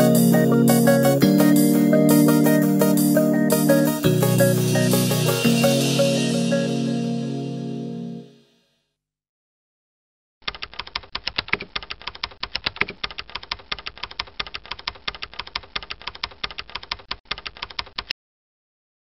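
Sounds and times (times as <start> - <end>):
keyboard keystroke clicks: 10.5 - 18.1.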